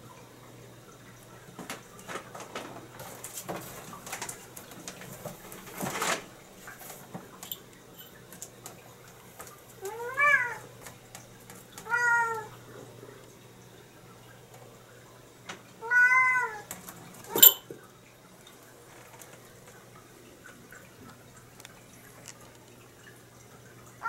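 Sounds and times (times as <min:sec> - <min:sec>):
cat meowing: 0:09.8 - 0:10.6, 0:11.8 - 0:12.5, 0:15.8 - 0:16.6.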